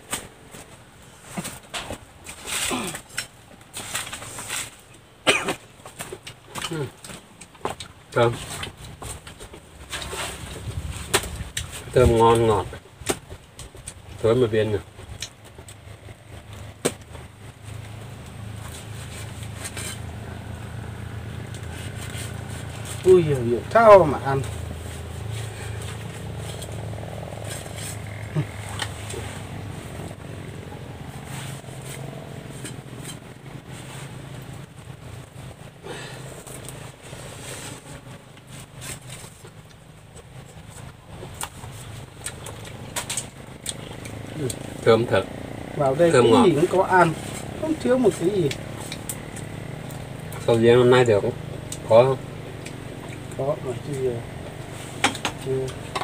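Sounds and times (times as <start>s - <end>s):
steady low hum: 0.0s - 56.0s
faint crackles of fruit: 5.8s - 30.4s.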